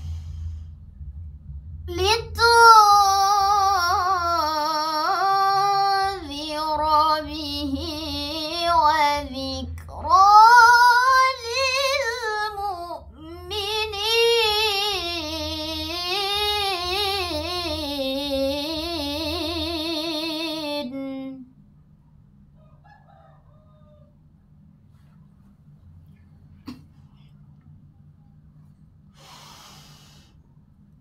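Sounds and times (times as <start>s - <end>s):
faint low hum: 0.0s - 31.0s
girl reciting melodically: 1.9s - 21.4s.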